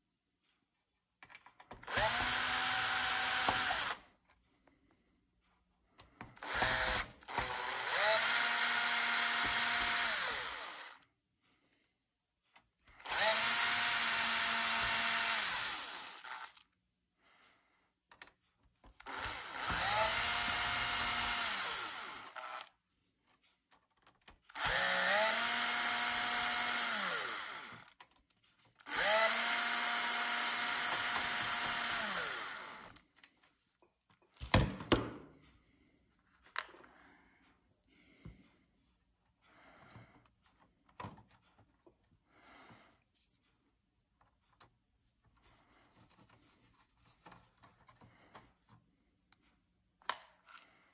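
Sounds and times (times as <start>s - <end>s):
cordless drill motor whine: 1.8s - 4.1s, 6.4s - 11.0s, 13.0s - 16.6s, 19.0s - 22.7s, 24.5s - 28.0s, 28.8s - 33.0s.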